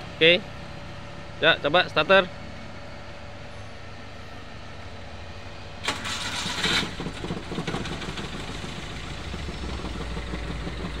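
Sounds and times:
engine idling roughly: 0:00.9 - 0:11.0
engine starter cranking: 0:05.8 - 0:11.0.

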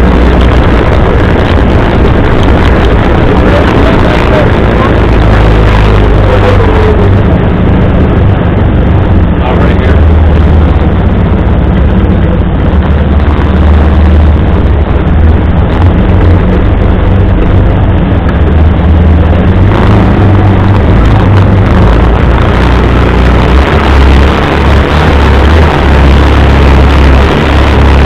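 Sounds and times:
utility vehicle engine droning: 0:00.0 - 0:28.0.

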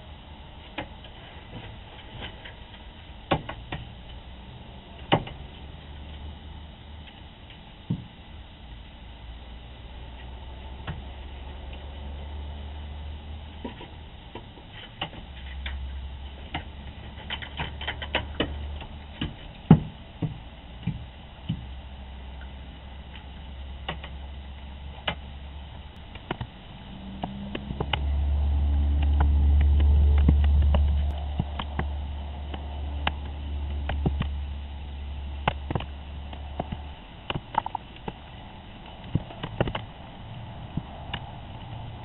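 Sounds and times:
low hum: 0:00.0 - 0:42.0
low rumble: 0:19.9 - 0:42.0.

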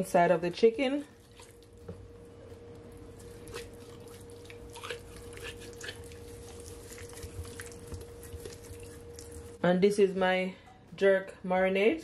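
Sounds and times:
wet squishing of raw chicken: 0:01.2 - 0:02.0, 0:02.9 - 0:09.6.

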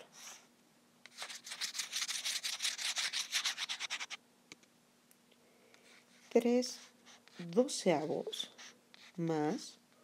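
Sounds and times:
eraser rubbing on blackboard: 0:01.1 - 0:04.2.

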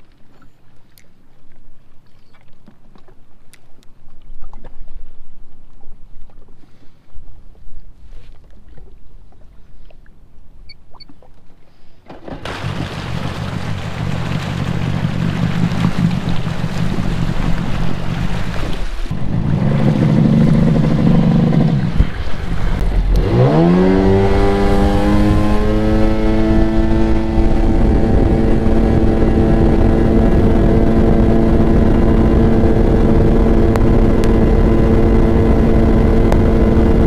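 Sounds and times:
watercraft engine running: 0:08.4 - 0:37.0
jet pump churning water: 0:12.1 - 0:37.0.

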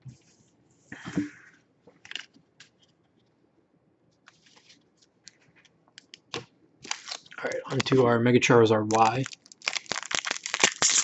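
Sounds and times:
card pack crinkling: 0:06.8 - 0:08.1, 0:08.8 - 0:11.0.

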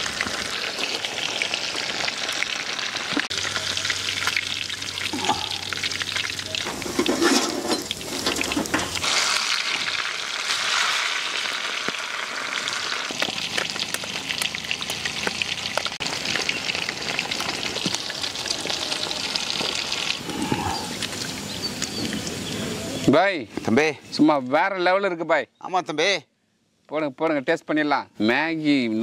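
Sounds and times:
fish sizzling in hot oil: 0:00.0 - 0:22.7.

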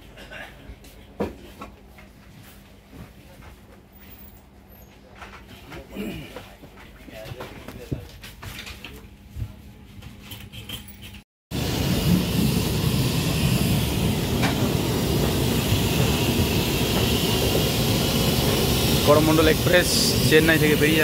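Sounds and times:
train wheels rumbling on rail: 0:11.5 - 0:21.0.

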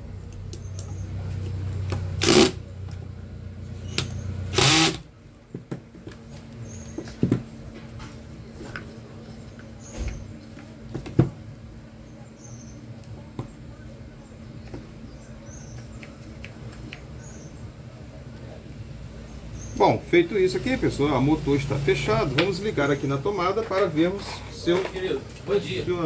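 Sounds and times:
cordless drill driving screws: 0:02.2 - 0:02.6, 0:04.5 - 0:05.0.

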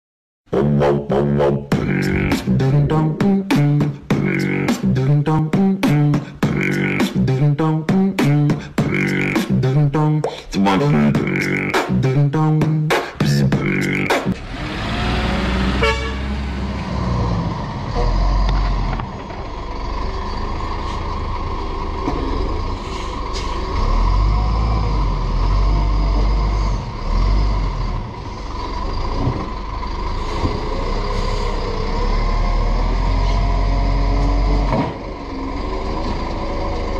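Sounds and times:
diesel truck engine rumble: 0:00.5 - 0:36.9
beat-driven intro music: 0:00.6 - 0:14.4.

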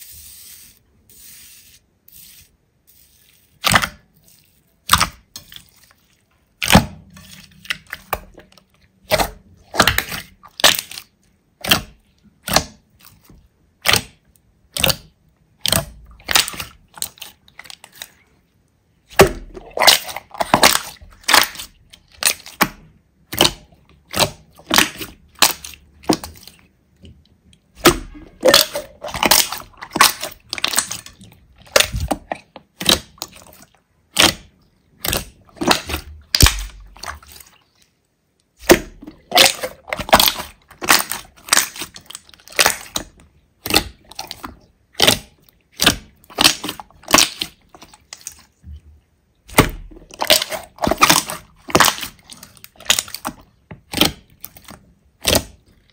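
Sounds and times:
slime crackling pops: 0:38.6 - 0:44.4.

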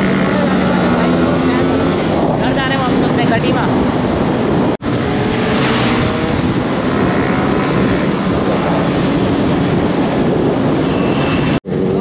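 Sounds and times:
motorcycle engine running: 0:00.0 - 0:12.0
wind noise on microphone: 0:00.0 - 0:12.0.

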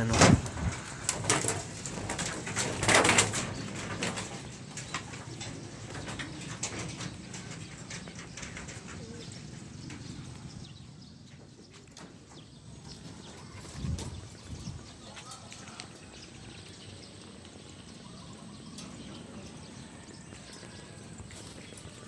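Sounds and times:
sharp knocks and rattles: 0:00.0 - 0:15.0
pigeons cooing: 0:00.0 - 0:22.0.

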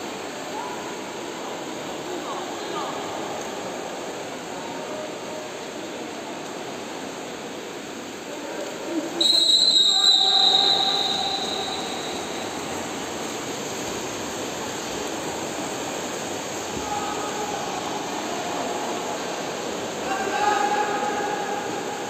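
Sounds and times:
swimmers splashing water: 0:00.0 - 0:22.0.

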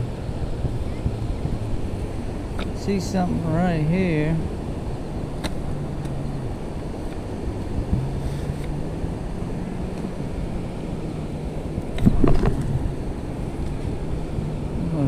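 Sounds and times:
wind noise: 0:00.0 - 0:15.0.

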